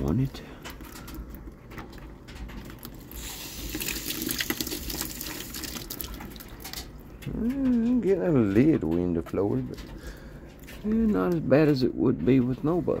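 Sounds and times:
water splashing into bucket: 2.8s - 6.8s
hose water spraying: 3.1s - 5.7s.

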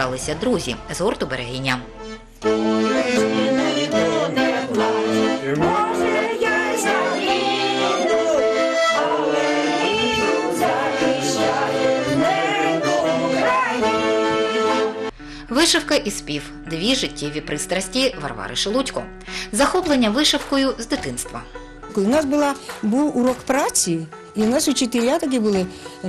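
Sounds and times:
accordion chords: 0.0s - 18.4s
group singing: 2.5s - 15.1s.

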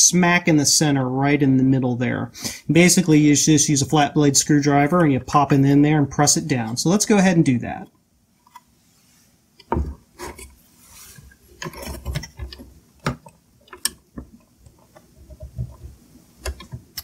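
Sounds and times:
wires rubbing: 7.8s - 17.0s.

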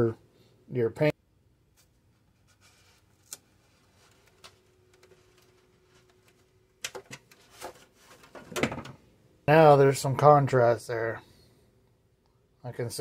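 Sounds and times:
tape rustling: 1.7s - 8.9s
plastic body clicking and crinkling: 4.1s - 9.0s.

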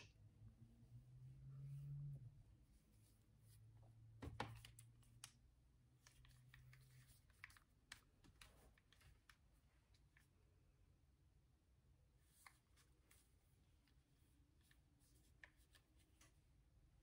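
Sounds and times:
faint low hum: 0.0s - 17.0s
faint clicks and taps: 4.2s - 10.3s.

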